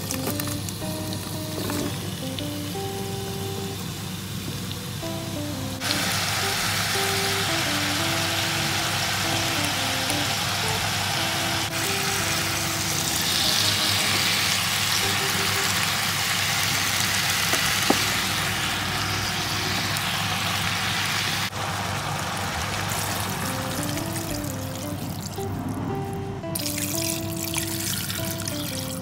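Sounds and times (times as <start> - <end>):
background music: 0.0 - 16.1, 23.0 - 29.0
meat and vegetables sizzling: 0.0 - 25.6, 26.6 - 29.0.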